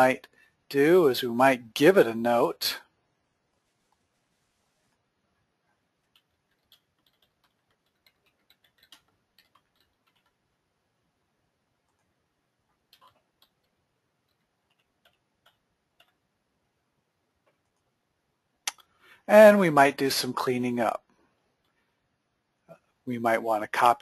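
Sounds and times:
faint computer keyboard typing: 5.9 - 10.6, 11.8 - 16.4, 17.4 - 18.0.

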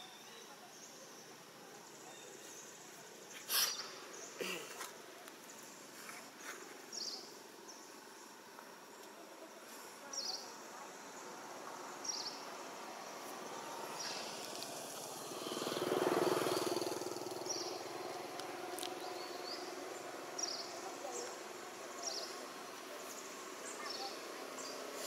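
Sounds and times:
outdoor ambience: 0.0 - 25.0
motor vehicle passing: 11.4 - 25.0.

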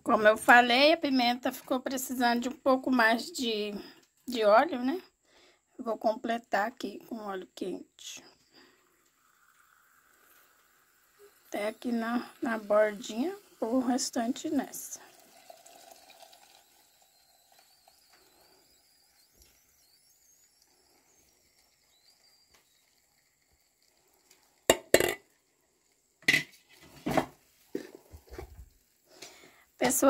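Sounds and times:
oil pouring into a plastic jar: 8.5 - 26.7
kitchenware clinking and knocking: 24.7 - 25.2, 26.2 - 28.6.

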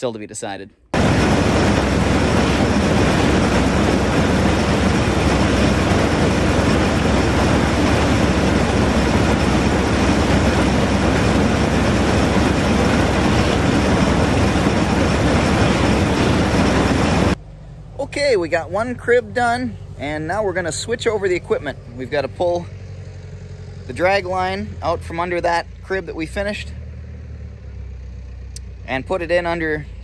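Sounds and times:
corn sheller running: 1.0 - 17.4.

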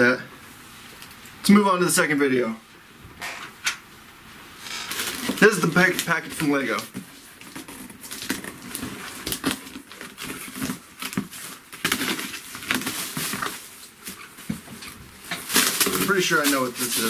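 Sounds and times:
cardboard box rustling and scraping: 4.6 - 5.7.

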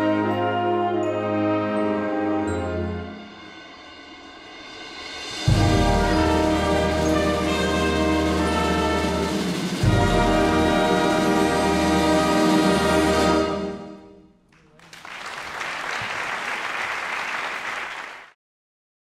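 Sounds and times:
audience applauding: 14.5 - 18.4.

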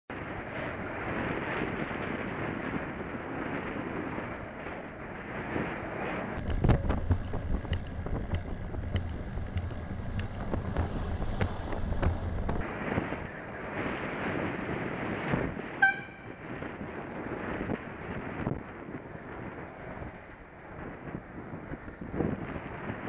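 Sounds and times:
wind noise on microphone: 0.1 - 23.0
sharp clicks: 6.4 - 12.6
short sharp ping: 15.8 - 16.4.

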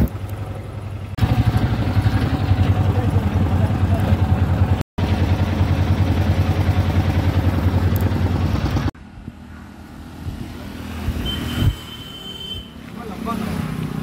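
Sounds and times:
vehicle engine idling: 0.0 - 9.0.

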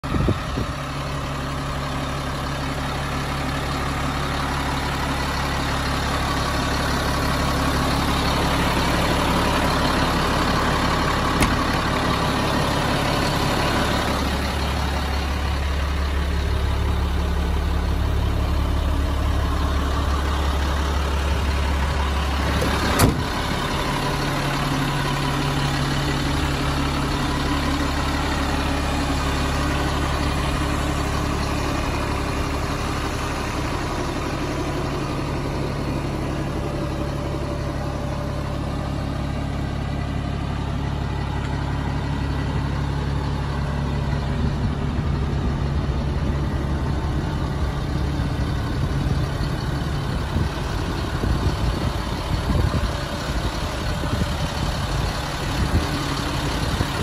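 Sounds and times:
diesel truck engine idling: 0.0 - 57.0.

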